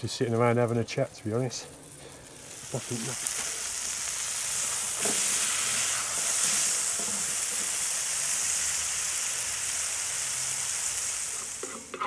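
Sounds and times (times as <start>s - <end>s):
steak sizzling in frying pan: 0.1s - 12.0s
tongs turning steak: 1.7s - 7.9s.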